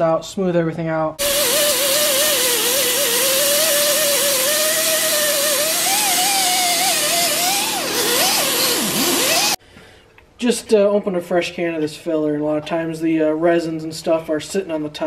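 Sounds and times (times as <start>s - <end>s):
pneumatic grinder on sheet metal: 1.2s - 9.6s.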